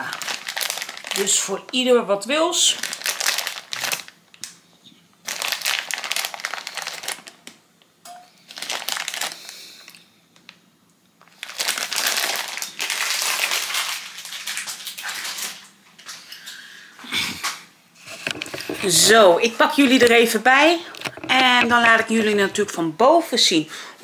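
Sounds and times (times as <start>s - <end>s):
plastic bag crinkling: 0.0s - 4.5s, 5.2s - 7.6s, 8.4s - 10.0s, 11.2s - 16.2s, 18.0s - 22.8s.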